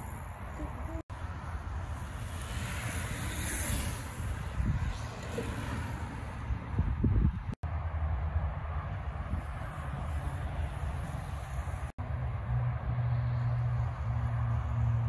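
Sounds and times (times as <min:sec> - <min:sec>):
tyres hissing on asphalt: 0:00.0 - 0:06.8, 0:09.2 - 0:11.9
wind buffeting microphone: 0:02.6 - 0:11.9.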